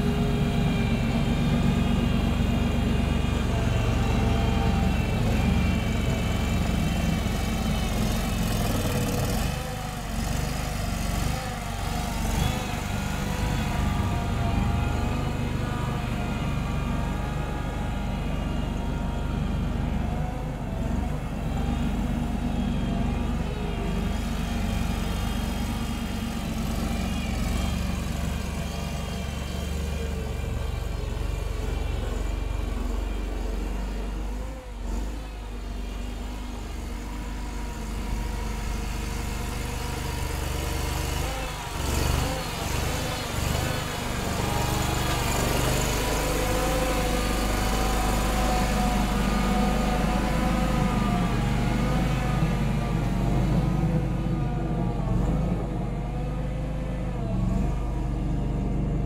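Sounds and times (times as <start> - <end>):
wheel loader engine running: 0.0 - 59.0.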